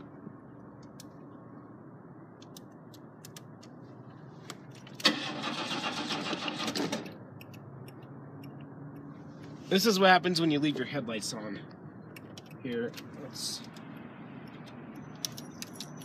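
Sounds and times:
starter motor cranking engine: 5.0s - 7.1s.

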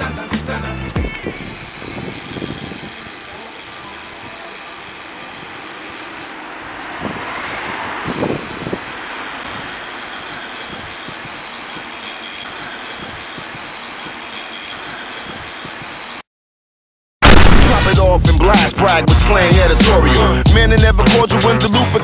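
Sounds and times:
bicycles rolling on paved path: 1.1s - 16.2s
wind on microphone: 1.2s - 3.3s, 6.7s - 9.8s.

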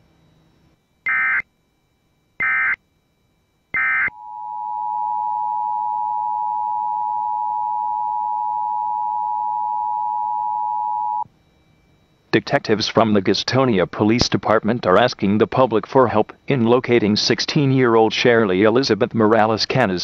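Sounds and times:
data bursts: 1.0s - 1.4s, 2.4s - 2.8s, 3.8s - 11.2s
two-tone attention signal: 2.4s - 2.8s, 3.8s - 11.2s.

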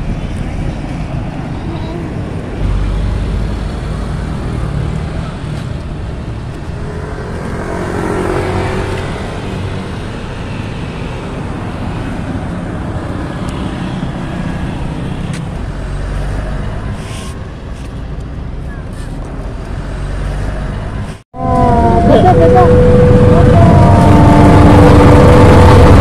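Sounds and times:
cars and motorbikes passing: 0.0s - 26.0s.

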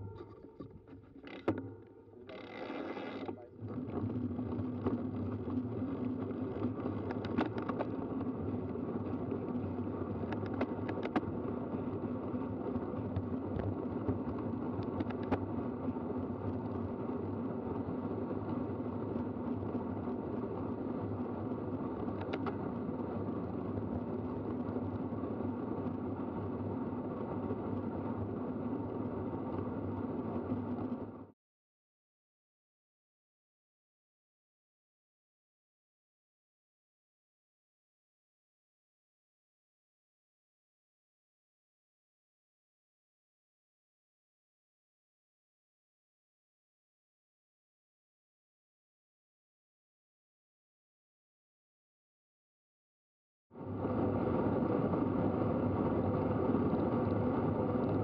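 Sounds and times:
small clicks: 0.0s - 3.4s, 4.7s - 9.5s, 10.2s - 11.4s, 13.0s - 15.6s, 21.9s - 22.6s
bike chain and tyres whirring: 1.2s - 31.3s, 53.6s - 58.0s.

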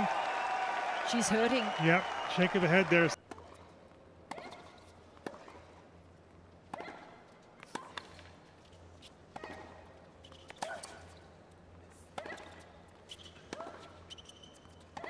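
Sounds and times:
tennis balls struck by rackets: 4.2s - 5.8s
shoe squeaks: 13.0s - 15.0s.

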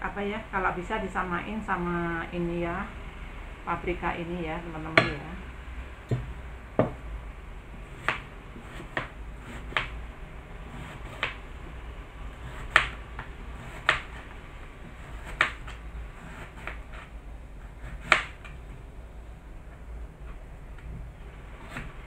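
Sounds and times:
knife knocking on cutting board: 6.1s - 7.0s.

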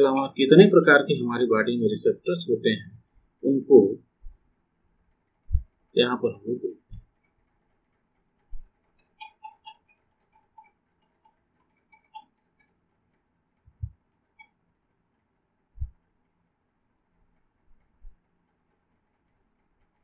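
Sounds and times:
dull low thumps: 5.5s - 5.7s
computer mouse clicking: 7.0s - 14.6s, 17.8s - 20.0s.

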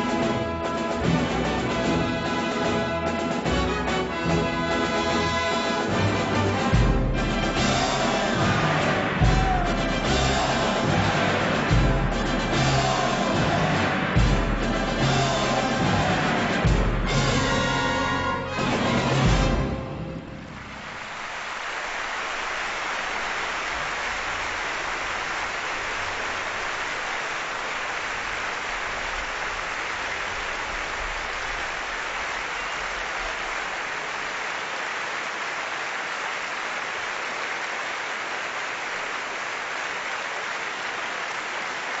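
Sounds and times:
large audience applauding: 0.0s - 42.0s.

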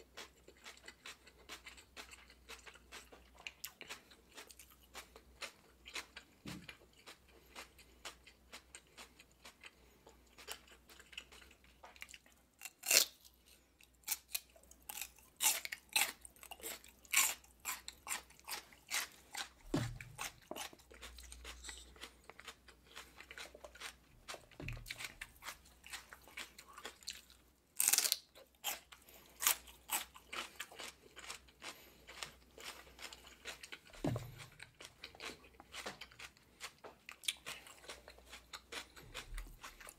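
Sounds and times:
celery crunching while chewed: 0.0s - 39.9s.

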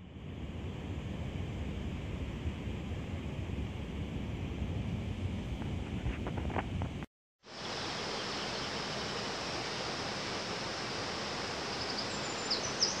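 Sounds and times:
waterfall and river rushing: 7.5s - 13.0s.

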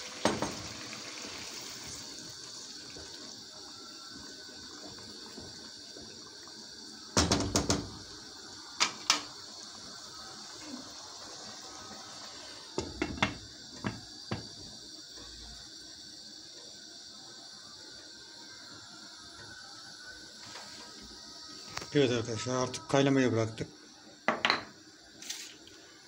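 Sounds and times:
water bubbling in a pan: 0.0s - 26.0s
glass lid put on pan: 24.3s - 24.7s.

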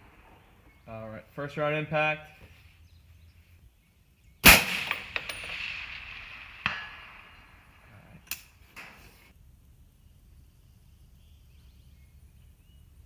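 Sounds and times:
bullet striking steel target: 4.4s - 7.9s
rifle shot echoing: 4.4s - 8.6s.

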